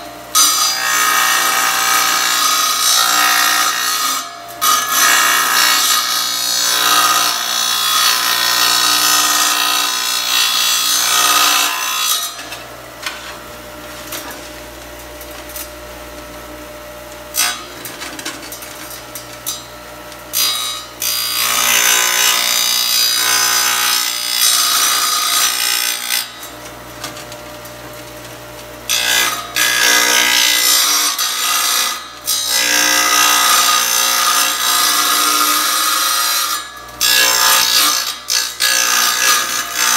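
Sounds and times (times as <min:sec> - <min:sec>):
tile saw grinding ceramic tile: 0:28.9 - 0:39.9.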